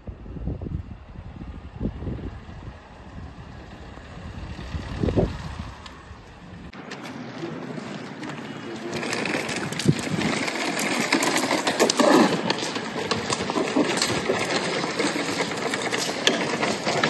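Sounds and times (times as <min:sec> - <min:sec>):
wheeled suitcase rattling on pavement: 0:01.4 - 0:17.0
footsteps: 0:06.7 - 0:17.0.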